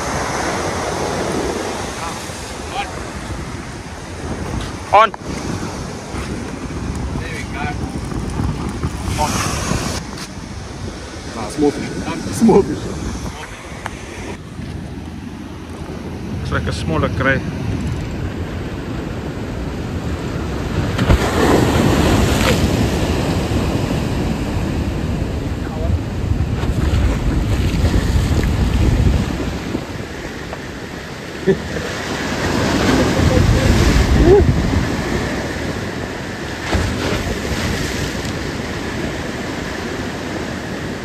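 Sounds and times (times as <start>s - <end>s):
ocean surf breaking: 0.0s - 41.0s
wind buffeting microphone: 0.0s - 41.0s.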